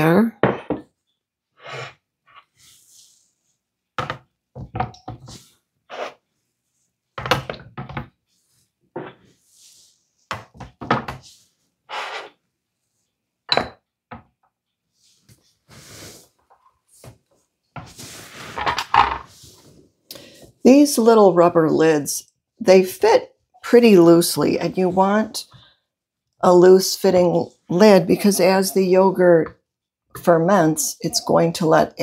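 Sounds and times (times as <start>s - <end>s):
ceramic jars knocking and clinking: 0.4s - 0.9s, 13.5s - 13.9s
rubber lid rubbing on jar: 11.9s - 12.4s.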